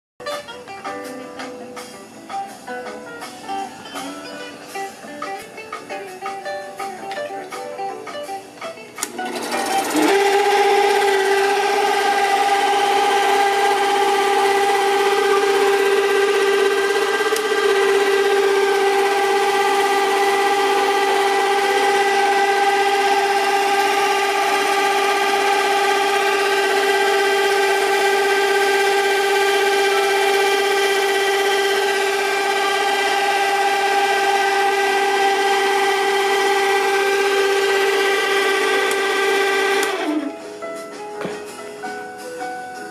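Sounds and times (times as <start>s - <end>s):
film projector motor whine: 9.0s - 40.3s.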